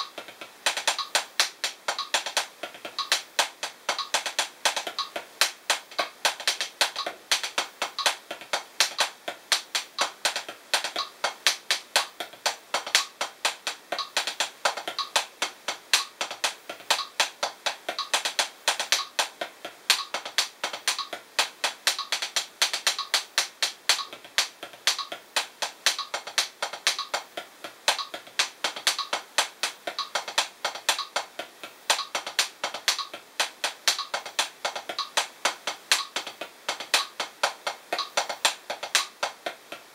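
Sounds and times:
drumsticks tapping practice pad: 0:00.0 - 0:39.9.

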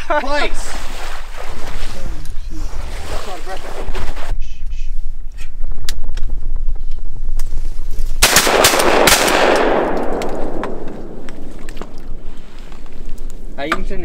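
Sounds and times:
shotgun blasts with echo: 0:08.2 - 0:11.5.

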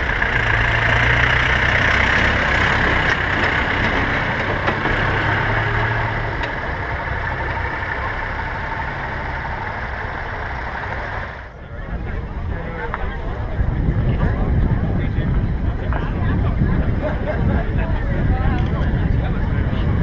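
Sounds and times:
tractor engines idling: 0:00.0 - 0:20.0.

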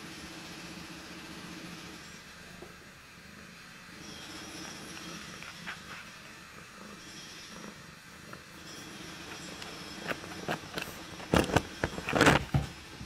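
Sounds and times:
cat purring: 0:02.8 - 0:12.9
cat rubbing against camera: 0:04.6 - 0:07.7, 0:09.1 - 0:12.5.

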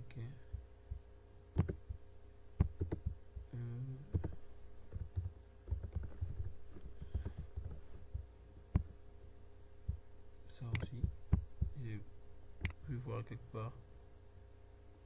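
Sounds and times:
low electrical hum: 0:00.0 - 0:15.0
mouse clicks: 0:01.6 - 0:01.9
keyboard keystrokes: 0:01.6 - 0:02.0, 0:02.6 - 0:03.2, 0:04.1 - 0:06.5.

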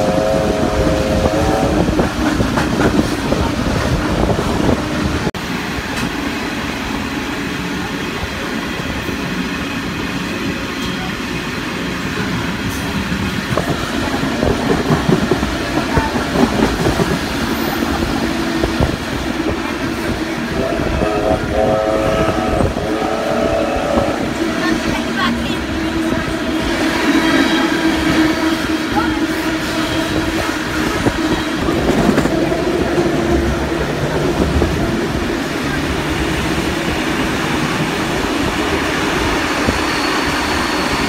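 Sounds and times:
train wheels rumbling and clattering: 0:00.0 - 0:41.0
steady squealing tone: 0:38.5 - 0:41.0.

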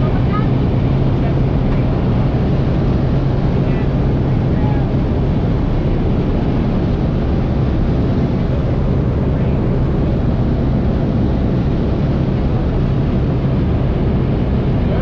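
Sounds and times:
plane engine and propeller drone: 0:00.0 - 0:15.0.

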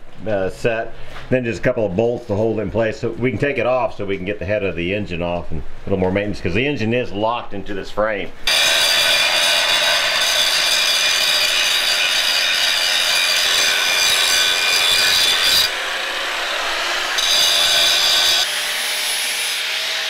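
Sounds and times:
angle grinder grinding steel: 0:08.5 - 0:20.0.

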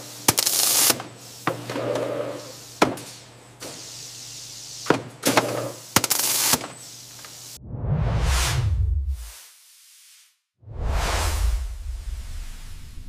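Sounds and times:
machine hissing: 0:00.0 - 0:07.6.

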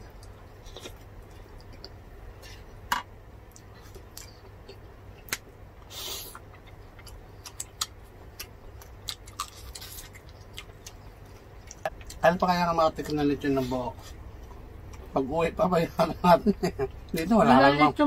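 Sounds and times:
chewing and eating: 0:00.0 - 0:02.8, 0:03.5 - 0:13.2, 0:13.9 - 0:15.2.

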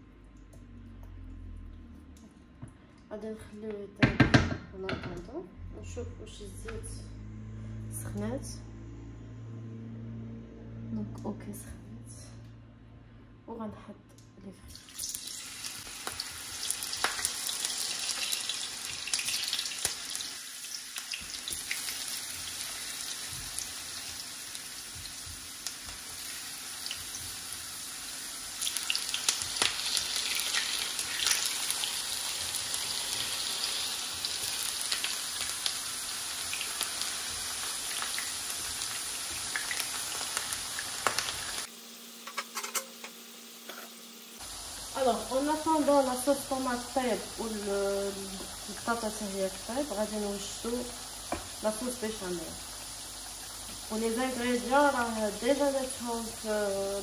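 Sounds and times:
potatoes sizzling in hot oil: 0:14.8 - 0:41.7, 0:44.4 - 0:57.0.

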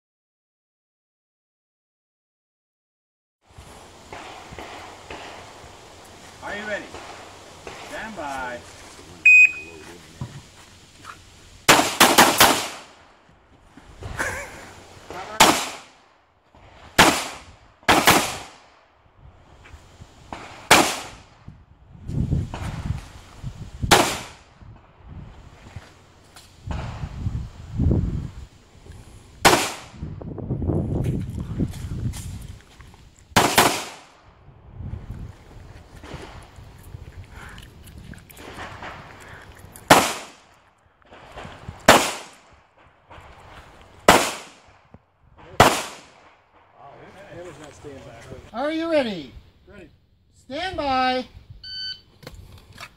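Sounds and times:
handgun shots: 0:11.7 - 0:12.9, 0:15.4 - 0:15.9, 0:17.0 - 0:18.5, 0:20.7 - 0:21.2, 0:33.4 - 0:34.1, 0:39.9 - 0:40.4, 0:41.9 - 0:42.3, 0:44.1 - 0:44.6, 0:45.6 - 0:46.1.

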